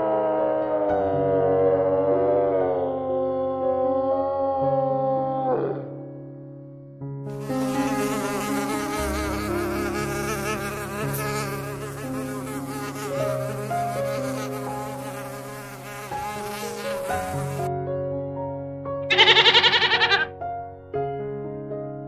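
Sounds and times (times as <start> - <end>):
fly buzzing: 7.3 - 17.7, 19.1 - 20.3.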